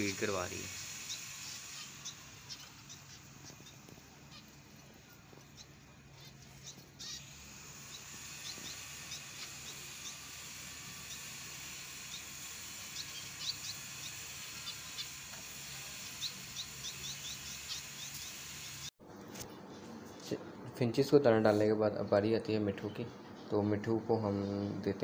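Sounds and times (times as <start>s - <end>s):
steady hiss: 0.0s - 6.0s, 7.0s - 18.9s
finches chirping: 0.0s - 18.9s.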